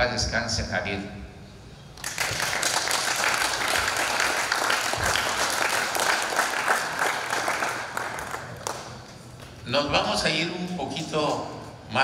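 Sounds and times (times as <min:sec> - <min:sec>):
audience applause: 0:02.0 - 0:09.0.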